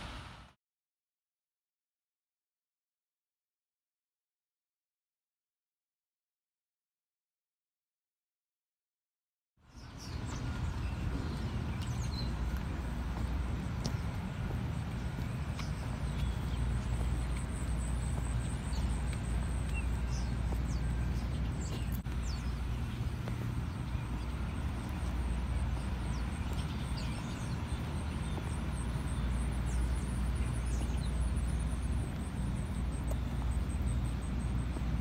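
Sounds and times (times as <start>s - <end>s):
low outdoor rumble: 0.0s - 0.6s, 9.6s - 35.0s
footsteps on concrete: 10.2s - 35.0s.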